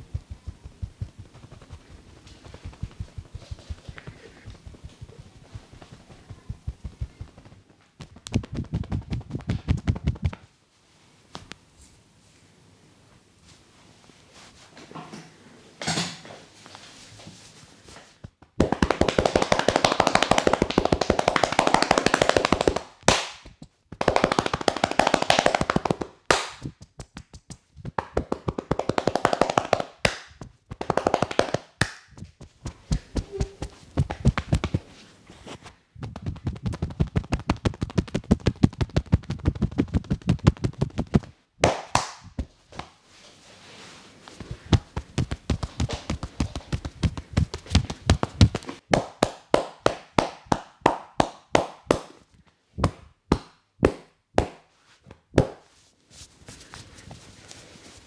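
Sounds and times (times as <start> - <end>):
hands tapping and slapping on body: 0.0 - 10.5, 18.2 - 34.9, 36.0 - 43.0, 44.4 - 52.2, 52.8 - 55.7.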